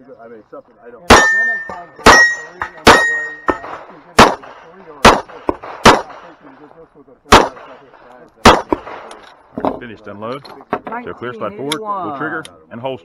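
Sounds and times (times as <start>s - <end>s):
pistol shots: 1.0s - 6.3s, 7.3s - 7.8s, 8.4s - 9.3s
steel target clanging: 1.1s - 3.9s.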